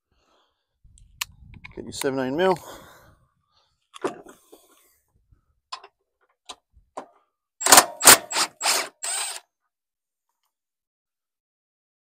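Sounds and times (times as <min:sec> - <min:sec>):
loud short wrench bursts: 0:07.6 - 0:09.4.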